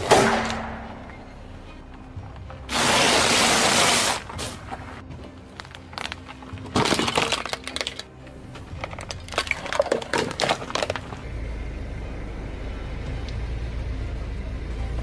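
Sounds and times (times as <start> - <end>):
plastic cracking under car tyre: 5.5 - 8.1, 8.7 - 11.2
steady low rumble: 10.8 - 15.0.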